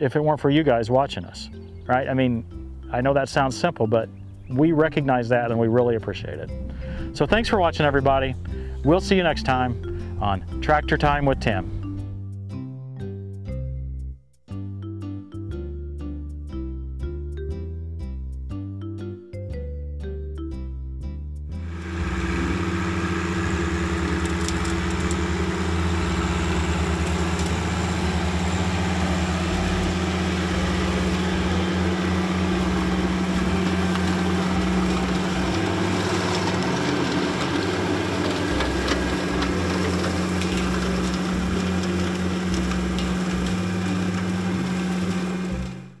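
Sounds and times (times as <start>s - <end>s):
tractor diesel engine running: 0.0s - 11.7s, 21.6s - 46.0s.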